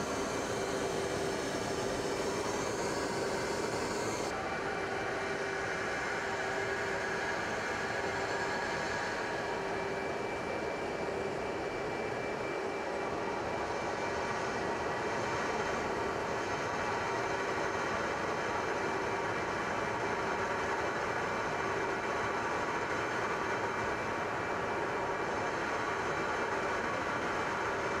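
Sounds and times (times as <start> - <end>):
faint steady tones: 0.0 - 5.1
aircraft drone in flight: 0.0 - 28.0.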